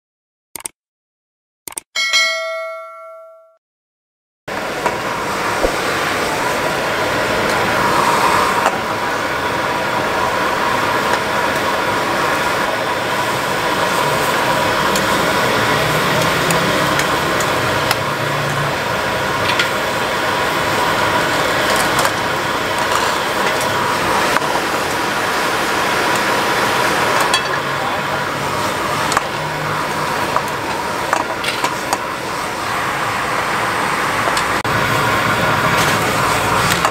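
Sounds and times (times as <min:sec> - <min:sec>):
gas burner running: 0:04.5 - 0:36.9
stir-fry sizzling: 0:04.5 - 0:36.9.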